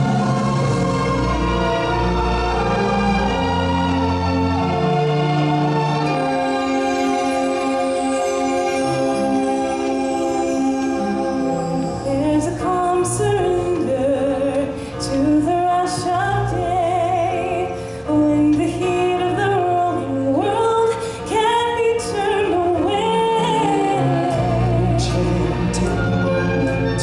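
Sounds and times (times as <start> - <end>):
instrumental accompaniment: 0.0 - 27.0
woman singing: 12.0 - 27.0.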